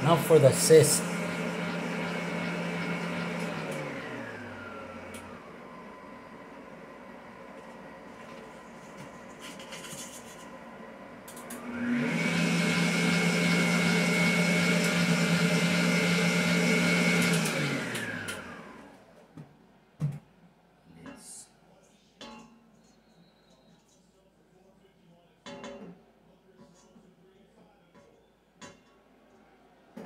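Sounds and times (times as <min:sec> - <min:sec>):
stand mixer motor whining: 0:00.0 - 0:08.3, 0:10.6 - 0:19.1.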